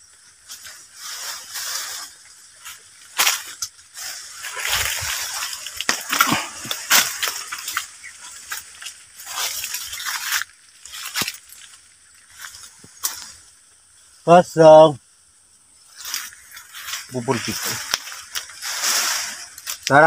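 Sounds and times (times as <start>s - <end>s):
leaves and twigs rustling: 0.0s - 20.0s
twigs snapping: 3.0s - 13.4s, 16.0s - 20.0s.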